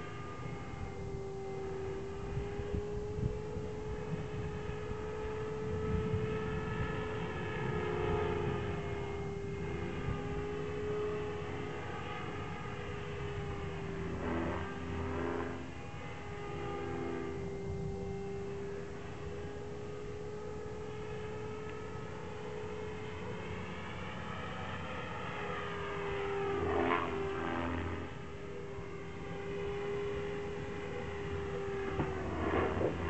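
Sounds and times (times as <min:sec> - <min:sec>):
model helicopter rotor whine: 0:00.0 - 0:33.0.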